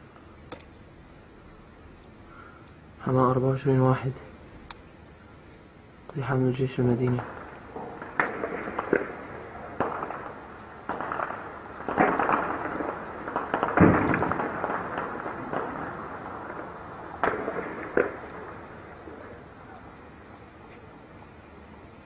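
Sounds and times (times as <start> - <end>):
gunshots echoing: 7.0 - 19.8
heavy deep bang: 7.2 - 19.3.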